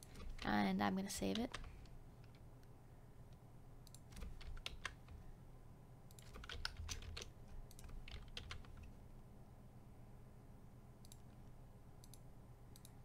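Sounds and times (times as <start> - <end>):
keyboard keystrokes: 3.9 - 5.2, 6.1 - 8.9.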